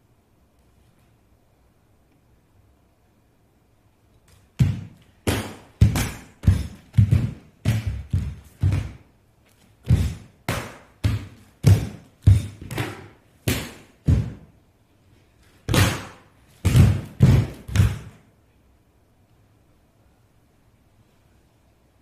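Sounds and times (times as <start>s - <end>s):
heavy thuds with echo: 4.6s - 9.0s, 9.8s - 14.5s, 15.7s - 18.2s.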